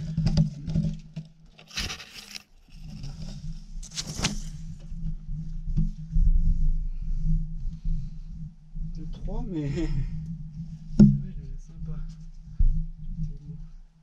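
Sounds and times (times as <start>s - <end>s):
camera rustling through ferns: 1.6s - 4.8s
steady low rumble: 4.6s - 14.0s.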